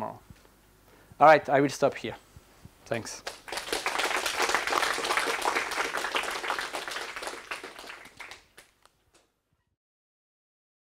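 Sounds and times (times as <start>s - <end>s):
audience applauding: 3.2s - 8.8s.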